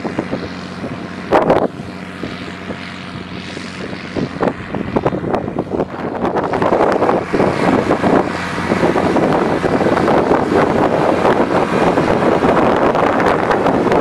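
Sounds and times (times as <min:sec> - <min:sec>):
tractor diesel engine running: 0:00.0 - 0:14.0
wind buffeting microphone: 0:00.0 - 0:14.0.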